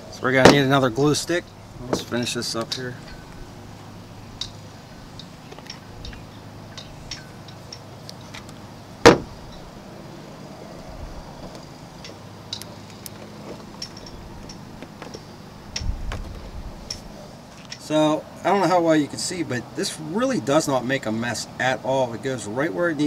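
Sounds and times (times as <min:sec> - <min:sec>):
sharp loud knock: 0:09.0 - 0:09.4.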